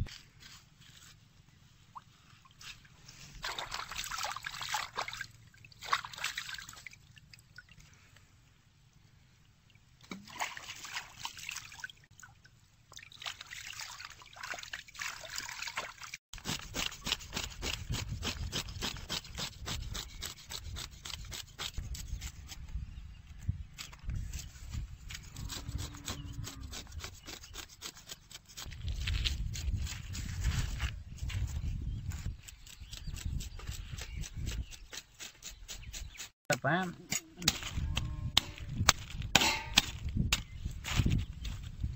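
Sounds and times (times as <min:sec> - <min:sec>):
water splashing: 0:03.4 - 0:07.8, 0:09.7 - 0:16.2.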